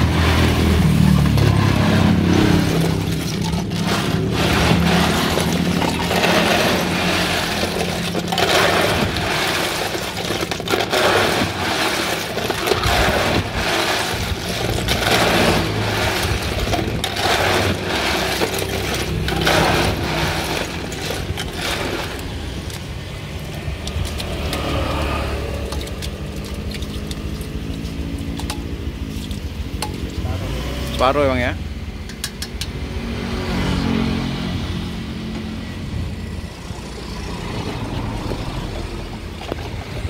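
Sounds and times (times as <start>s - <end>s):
scoop digging into ice cubes: 0.0s - 30.2s.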